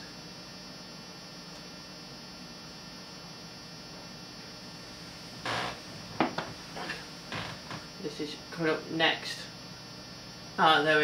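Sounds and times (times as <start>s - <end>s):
electrical hum: 0.0s - 11.0s
small knocks: 5.5s - 7.9s.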